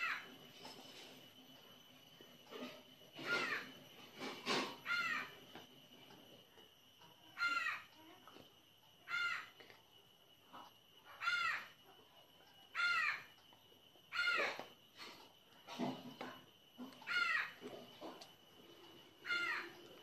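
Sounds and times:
bird calling: 19.2 - 19.9.

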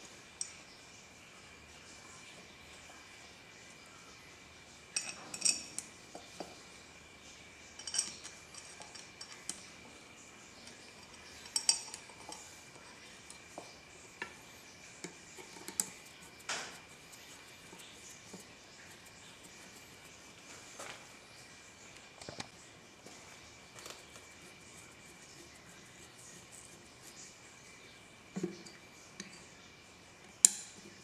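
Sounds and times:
metal screws clinking: 5.0 - 5.8, 7.8 - 9.6.

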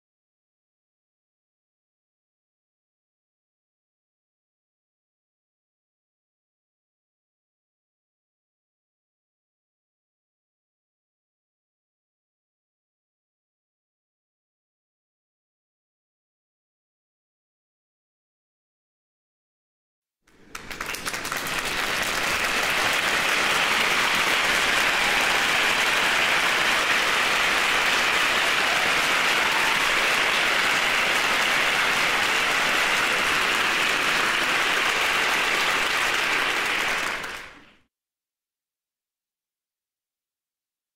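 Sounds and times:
applause: 20.3 - 37.9.

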